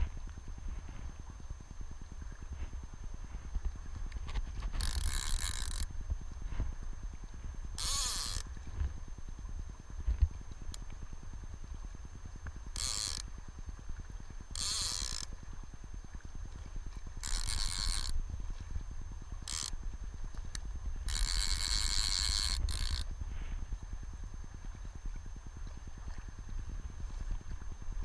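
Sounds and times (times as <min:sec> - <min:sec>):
wind and river rumble: 0:00.0 - 0:28.0
fly reel ratchet clicking: 0:04.0 - 0:05.9, 0:07.7 - 0:08.6, 0:12.7 - 0:13.4, 0:14.5 - 0:15.4, 0:17.2 - 0:18.2, 0:19.4 - 0:23.1.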